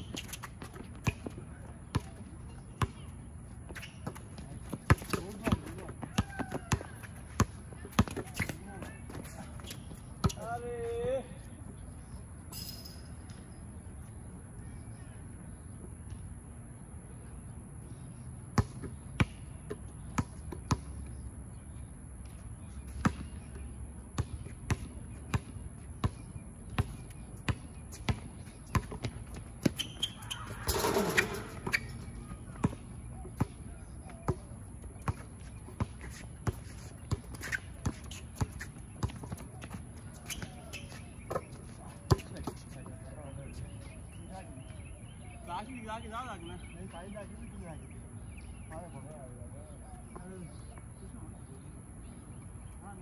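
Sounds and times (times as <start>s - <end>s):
sneakers shuffling: 0.0s - 12.2s, 24.2s - 46.7s
basketball bouncing on hard court: 0.1s - 2.2s, 2.8s - 3.1s, 3.7s - 10.5s, 23.0s - 23.4s, 24.2s - 33.6s.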